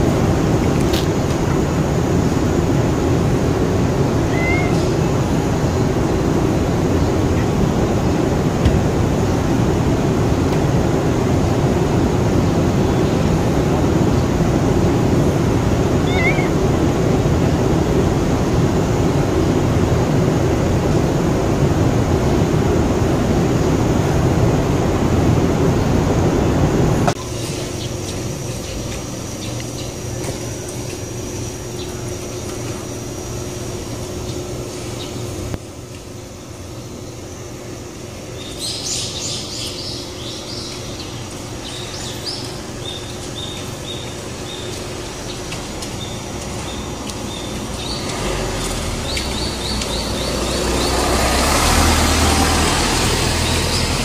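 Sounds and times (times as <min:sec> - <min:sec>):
traffic hum: 0:00.0 - 0:54.0
small birds chirping: 0:04.2 - 0:05.4, 0:16.0 - 0:16.6, 0:27.6 - 0:35.4, 0:36.6 - 0:51.4.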